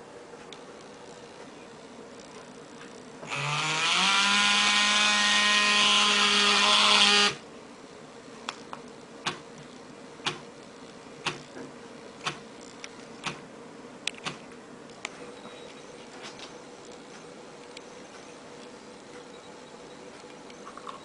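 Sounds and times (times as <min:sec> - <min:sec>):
vibration motor buzzing: 0:03.2 - 0:07.4.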